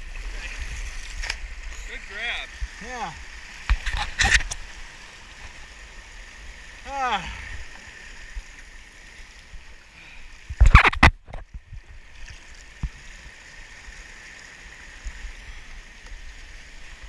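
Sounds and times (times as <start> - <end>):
ocean surf on rocks: 0.0 - 10.7.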